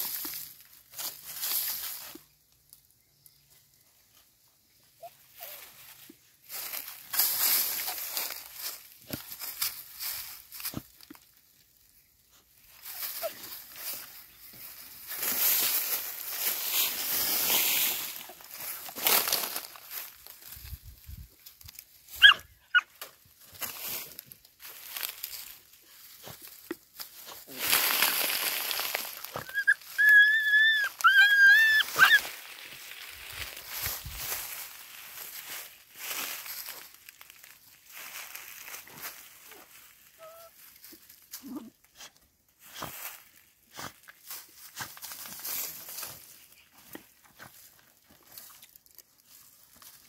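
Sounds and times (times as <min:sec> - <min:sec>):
dogs scratching in soil: 0:12.2 - 0:20.8, 0:23.6 - 0:37.0, 0:37.8 - 0:50.0
dog yelps: 0:22.2 - 0:22.9, 0:29.4 - 0:32.3, 0:40.2 - 0:40.6
dog whimpering whines: 0:40.2 - 0:40.6.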